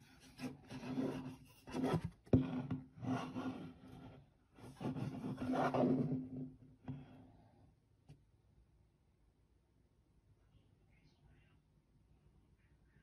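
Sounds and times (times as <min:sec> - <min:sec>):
cardboard box scraping: 0:04.7 - 0:06.4.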